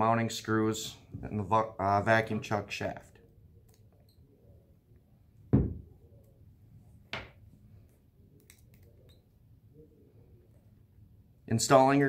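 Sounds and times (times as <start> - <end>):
thumps: 5.5 - 5.9.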